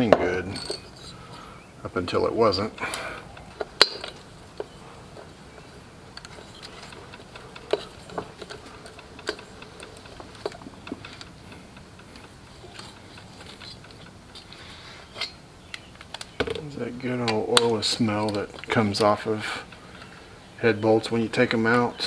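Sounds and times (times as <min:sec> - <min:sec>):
sharp metal clicks: 0:02.8 - 0:20.2
socket ratchet ticking: 0:02.9 - 0:14.7.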